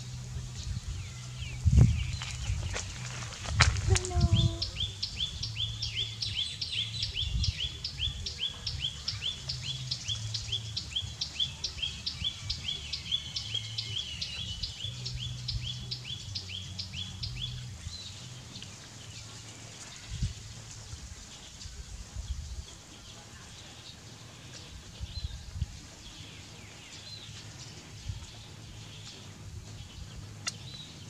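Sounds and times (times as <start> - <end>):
bird chirping: 0.0 - 20.3, 21.1 - 31.0.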